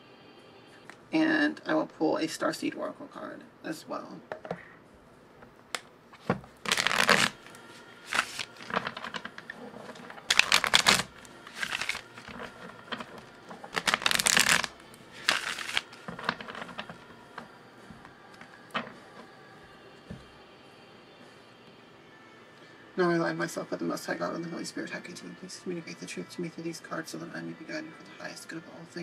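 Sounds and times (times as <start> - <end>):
cards being shuffled: 6.1 - 19.3.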